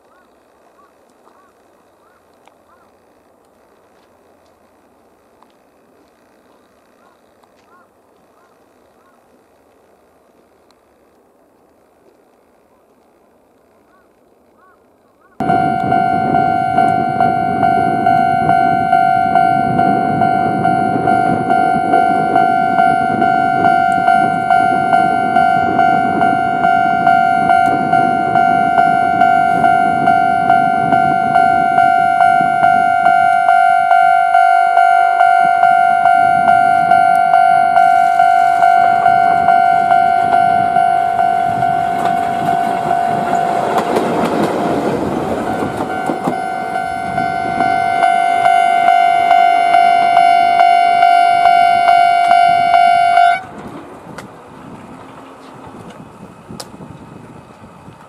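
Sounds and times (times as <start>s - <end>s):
electric locomotive rumble: 0.0s - 58.0s
level crossing warning bell: 15.4s - 53.5s.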